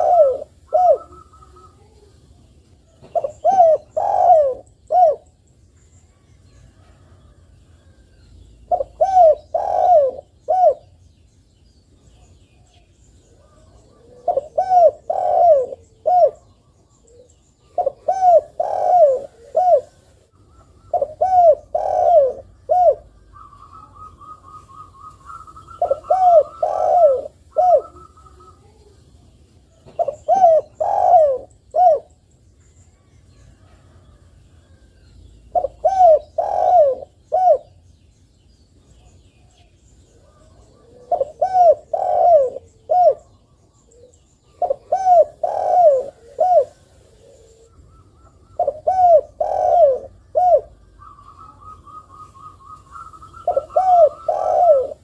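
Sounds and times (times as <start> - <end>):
dove cooing: 0.0 - 2.2, 2.8 - 5.4, 8.6 - 11.0, 13.3 - 29.0, 29.7 - 32.2, 35.5 - 37.8, 39.0 - 55.0.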